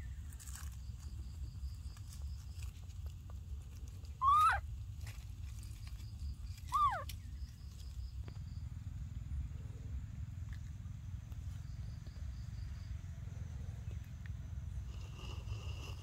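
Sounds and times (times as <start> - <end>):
steady low rumble: 0.0 - 15.0
faint insect chirping: 0.0 - 16.0
baby monkey coo: 4.2 - 4.7, 6.5 - 7.2.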